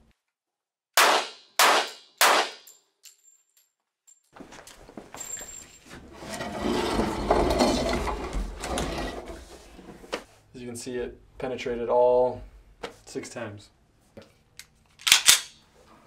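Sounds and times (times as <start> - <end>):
handgun shots: 1.0 - 2.7, 15.0 - 15.5.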